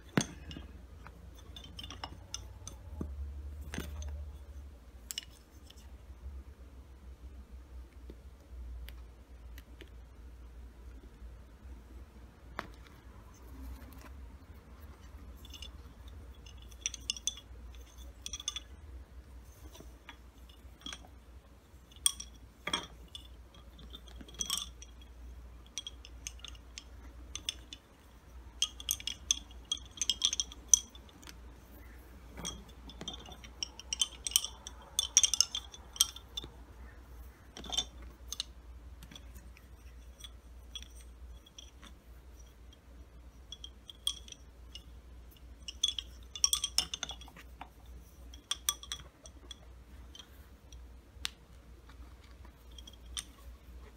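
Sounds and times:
wooden bobbins clicking together: 12.4 - 53.9.

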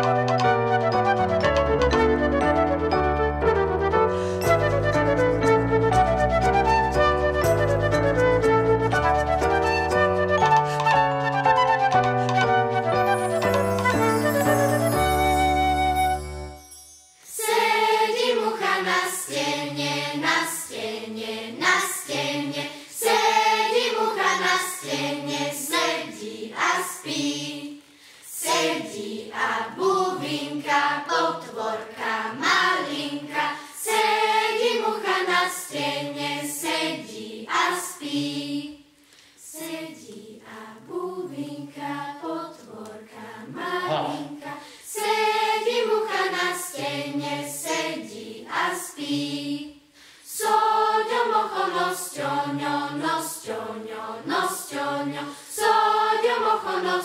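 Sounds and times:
children's choir singing: 17.2 - 57.0.

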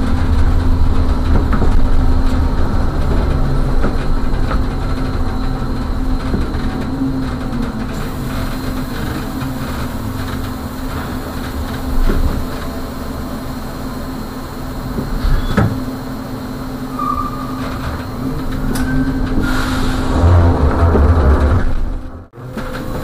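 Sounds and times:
trolley bus humming: 0.0 - 23.0
short squeak: 15.2 - 15.8.

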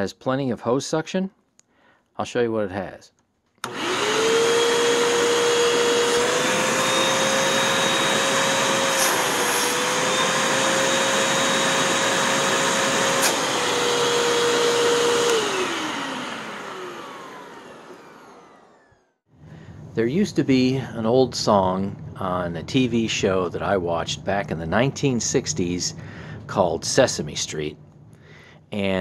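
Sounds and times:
vacuum cleaner motor whine: 3.6 - 20.3.

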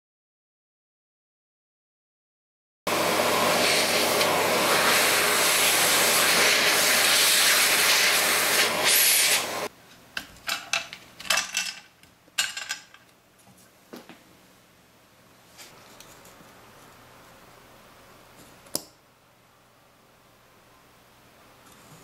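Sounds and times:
vacuum cleaner running: 2.9 - 9.7.

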